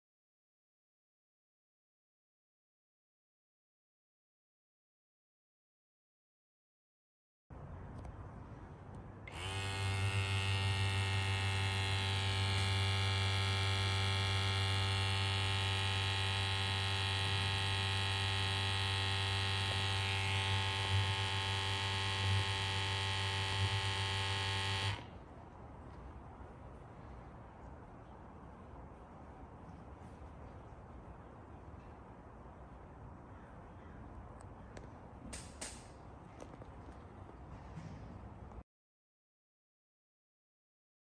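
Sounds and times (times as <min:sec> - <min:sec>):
small pump humming: 0:09.2 - 0:25.2.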